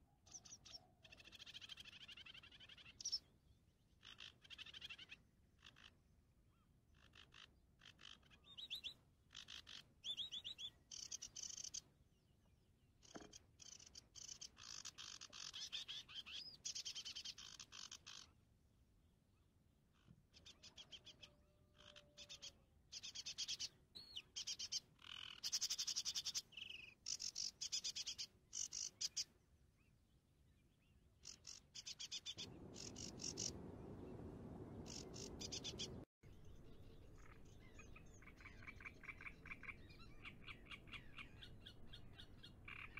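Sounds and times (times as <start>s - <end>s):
steady rushing noise: 32.4s - 36.0s.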